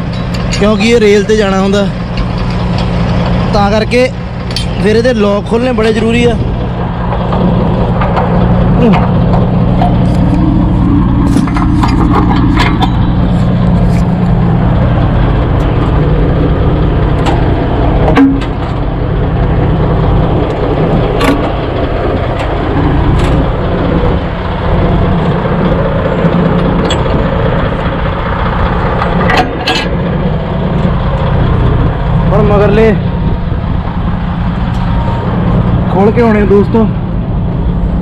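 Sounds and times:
diesel truck engine idling: 0.0 - 38.0
sharp clicks and knocks: 7.0 - 14.4, 17.2 - 18.9.

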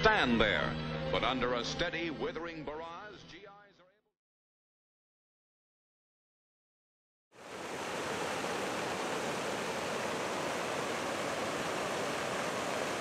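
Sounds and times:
fountain water splashing into pool: 7.4 - 13.0.

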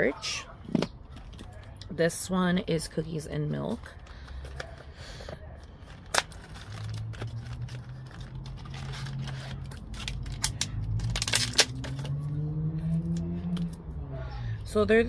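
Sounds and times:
packaging clicking and snapping: 4.0 - 12.2.

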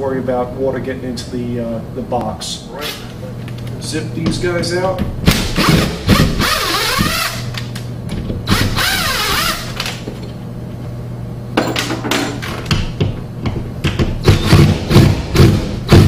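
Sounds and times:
cordless drill whirring: 5.6 - 7.5, 8.5 - 9.7.

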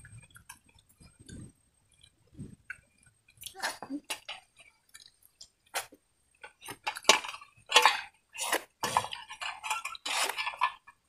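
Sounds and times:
steel plates clinking and scraping: 6.8 - 11.0.

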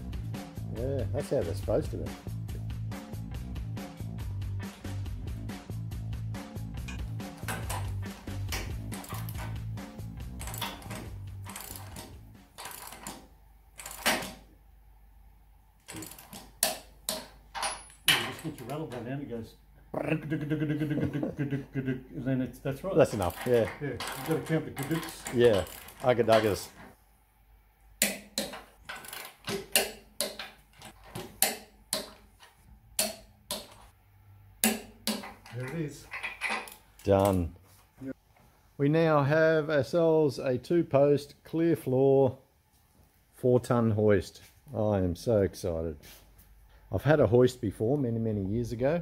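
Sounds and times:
background music: 0.0 - 13.2
ratchet wrench clicking: 10.4 - 13.2, 13.8 - 14.3, 15.9 - 18.0, 23.2 - 26.6.

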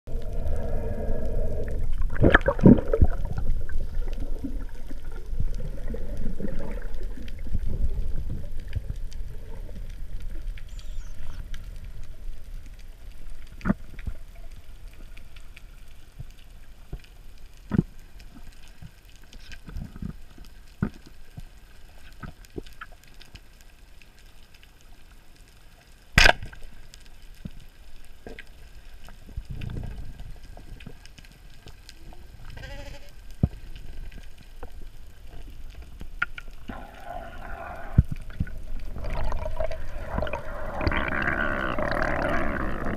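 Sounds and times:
underwater rush of water: 0.1 - 16.1, 28.2 - 42.9.

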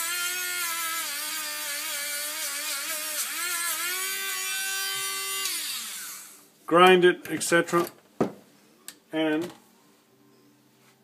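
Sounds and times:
rotary tool whining: 0.0 - 6.4.

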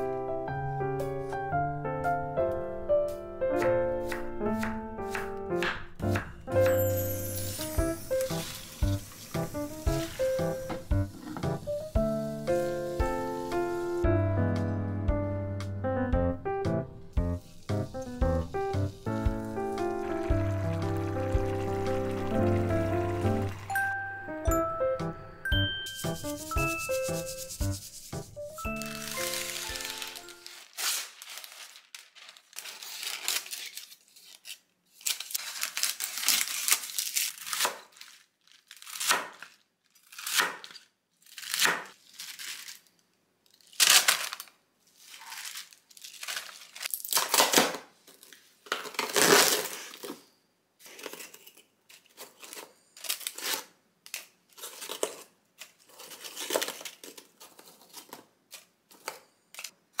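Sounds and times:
cooking paper crinkling: 6.7 - 14.1, 17.3 - 23.7, 25.9 - 60.0
cabbage leaves tearing by hand: 7.4 - 14.0, 28.8 - 42.9, 43.5 - 47.8, 48.8 - 50.1, 52.0 - 59.7.

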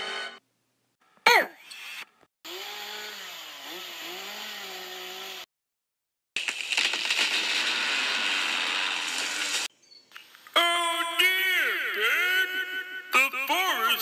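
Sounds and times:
chainsaw running: 2.5 - 5.5, 6.4 - 9.7.

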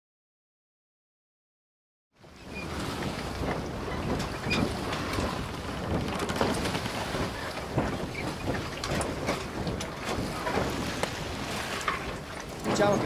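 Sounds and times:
wind buffeting microphone: 2.2 - 13.0
water splashing: 2.5 - 13.0.

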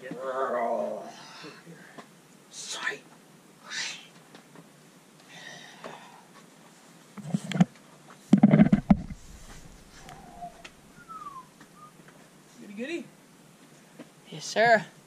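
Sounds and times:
rumbling and knocking on microphone: 8.3 - 10.8.

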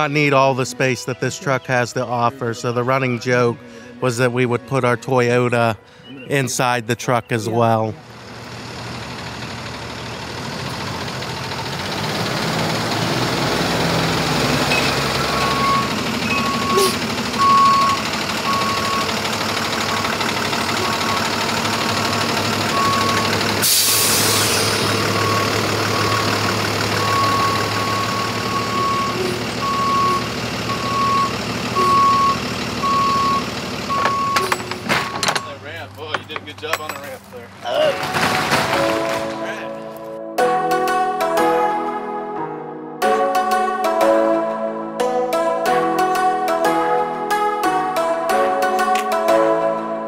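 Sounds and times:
truck engine running: 0.0 - 40.2
reversing alarm beeping: 14.6 - 35.6
air hiss: 23.6 - 24.9.

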